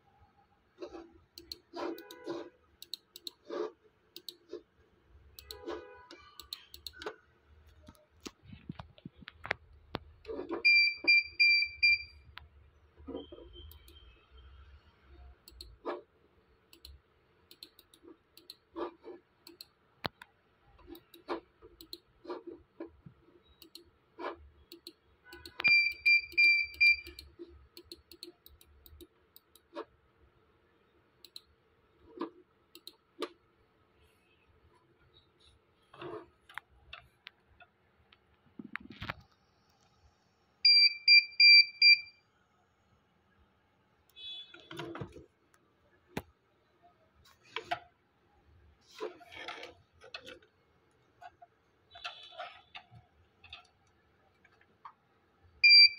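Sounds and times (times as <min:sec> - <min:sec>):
computer mouse clicking: 0:00.8 - 0:04.6, 0:05.4 - 0:10.6, 0:13.1 - 0:14.0, 0:15.4 - 0:16.1, 0:16.7 - 0:29.9, 0:31.2 - 0:31.5, 0:32.1 - 0:33.4.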